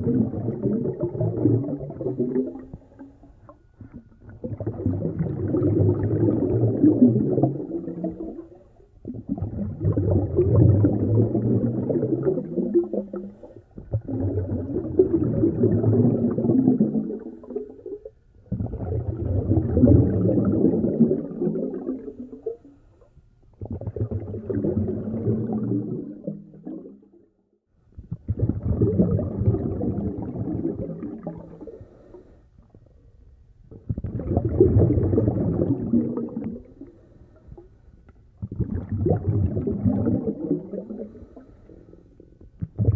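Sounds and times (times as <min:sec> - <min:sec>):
breathing through a snorkel underwater: 0:12.8 - 0:14.3, 0:31.2 - 0:32.7, 0:36.6 - 0:38.0, 0:40.4 - 0:42.9.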